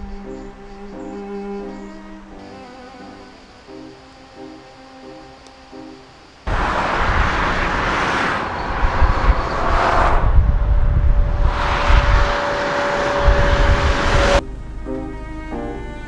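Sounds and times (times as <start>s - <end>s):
traffic passing at speed: 6.4s - 14.4s.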